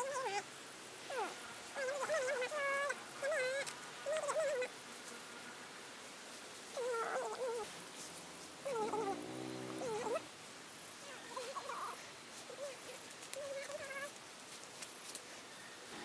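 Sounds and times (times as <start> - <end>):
small animal crying: 0.0 - 0.4, 1.1 - 4.7, 6.8 - 7.7, 8.7 - 10.3, 11.1 - 14.1.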